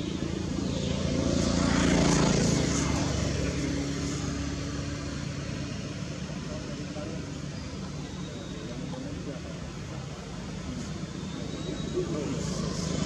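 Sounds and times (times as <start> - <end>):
passing engine drone: 0.0 - 13.0.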